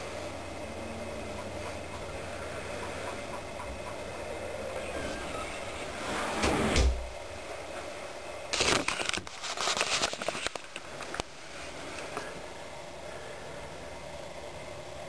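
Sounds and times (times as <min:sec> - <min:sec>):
handling clicks and rustling: 0:08.5 - 0:11.3.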